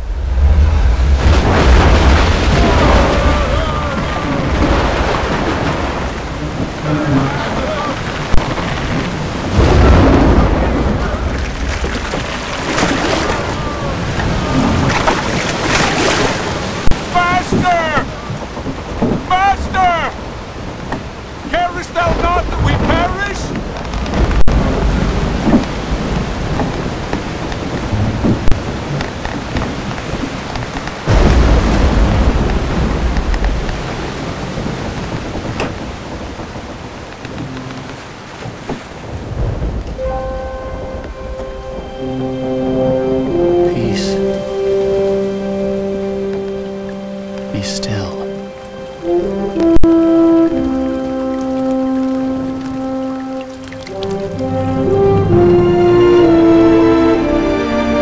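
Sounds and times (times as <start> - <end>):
low rumble of thunder: 0.0 - 19.3, 20.2 - 41.9
thunder crack: 0.0 - 41.8
steady rain: 0.0 - 58.0.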